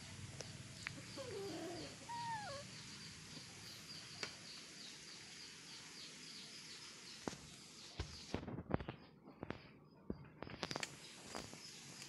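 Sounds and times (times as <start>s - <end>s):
wavering animal calls: 1.0s - 2.7s
fast high chirping: 2.1s - 2.6s.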